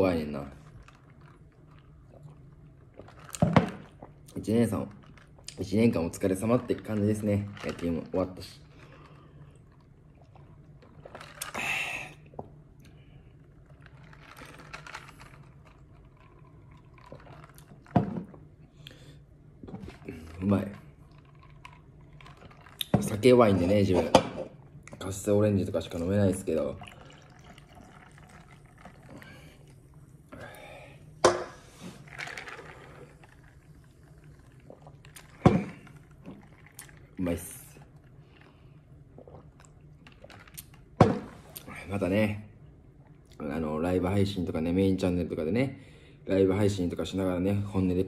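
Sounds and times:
low steady hum: 0.0s - 48.0s
soft sipping: 0.5s - 24.0s, 25.9s - 41.9s
drink poured over ice: 13.0s - 19.0s, 19.7s - 24.2s, 25.7s - 29.8s, 32.0s - 38.6s
breathy exhale: 30.3s - 31.9s.

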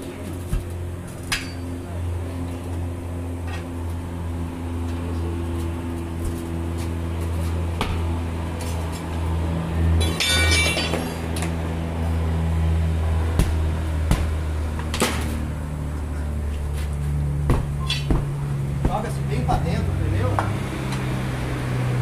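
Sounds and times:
metallic ringing: 10.0s - 11.3s, 17.8s - 18.1s
tire irons clinking on rim: 10.0s - 11.5s, 17.7s - 19.2s.

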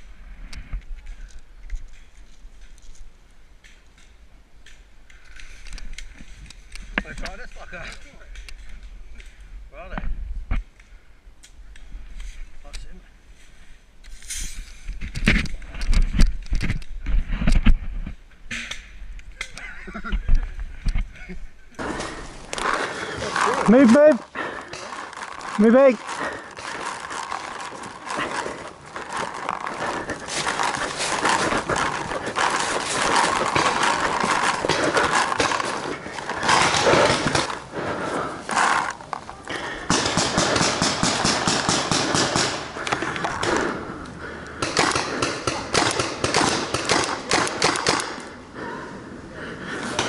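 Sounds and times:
paintball markers firing: 21.8s - 37.7s, 38.5s - 43.8s, 44.6s - 48.3s
gear knocking and rustling: 21.8s - 43.6s.

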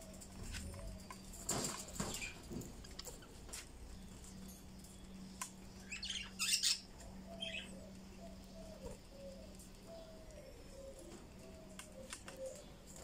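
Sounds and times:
steady low hum: 0.0s - 13.0s
budgerigars chirping: 5.8s - 9.3s.

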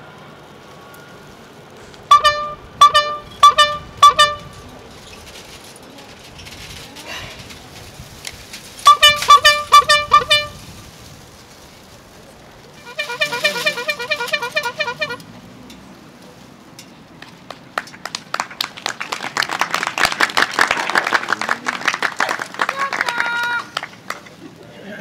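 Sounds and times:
crowd clapping: 17.2s - 24.5s.

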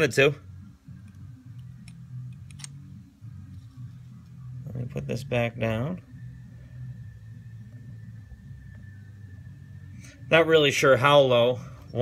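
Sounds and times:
low background hum: 0.0s - 12.0s
thin high whine: 3.2s - 12.0s.

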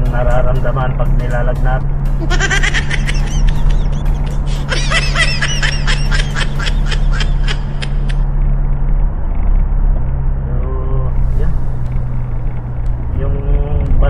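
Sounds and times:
high laugh-like sound: 2.2s - 8.2s.

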